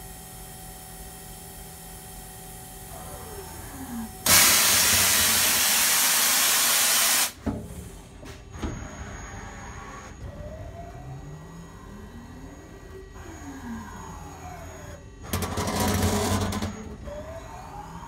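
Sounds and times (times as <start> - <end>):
compressed air hissing: 4.3 - 7.4.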